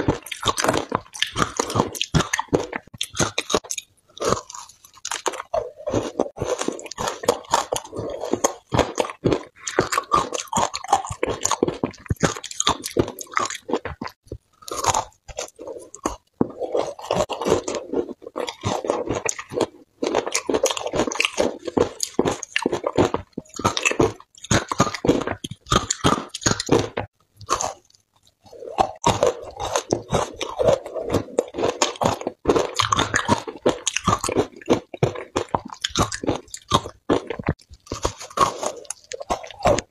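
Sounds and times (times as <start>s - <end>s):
chewing crunchy ice: 0.0s - 39.9s.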